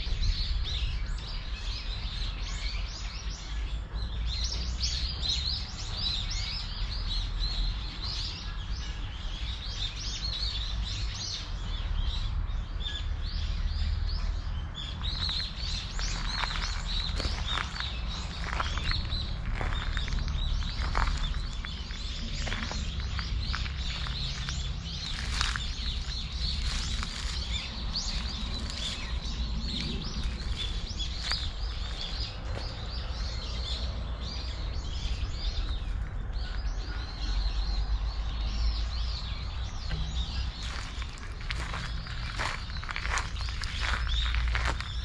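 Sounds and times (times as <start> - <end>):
small birds chirping: 0.0 - 45.0
low rumble: 14.8 - 45.0
footsteps crunching dry leaves: 15.0 - 33.2, 40.0 - 45.0.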